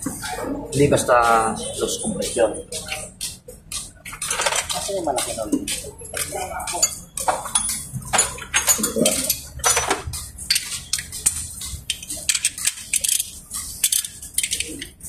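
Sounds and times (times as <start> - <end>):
metallic clinks of hand tools: 6.1 - 14.8.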